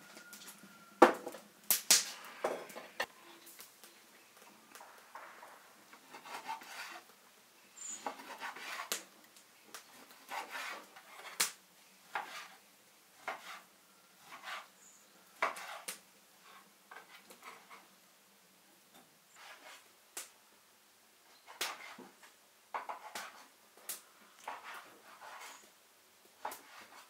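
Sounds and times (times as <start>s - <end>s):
rubbing and scraping on wood: 4.7s - 7.1s, 7.8s - 12.6s, 13.2s - 17.9s, 19.3s - 19.9s, 21.4s - 23.5s, 24.4s - 25.8s, 26.4s - 27.0s.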